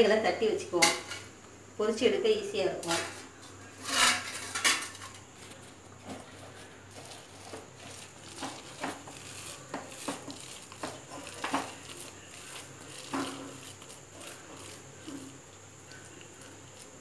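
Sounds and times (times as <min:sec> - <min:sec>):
steel kitchenware clattering: 0:03.8 - 0:05.2
hands squelching batter: 0:05.2 - 0:17.0.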